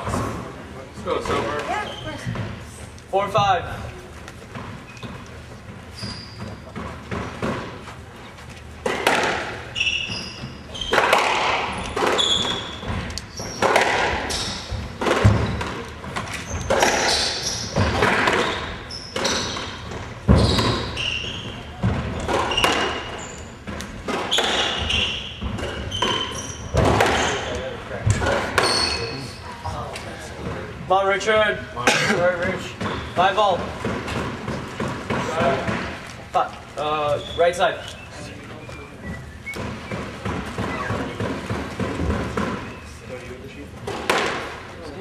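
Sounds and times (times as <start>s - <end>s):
shoes squeaking on wooden floor: 0.0s - 30.9s, 32.2s - 45.0s
squash ball smacking: 6.4s - 7.8s, 8.8s - 28.8s, 32.8s - 36.3s, 39.5s - 42.8s, 43.8s - 44.7s.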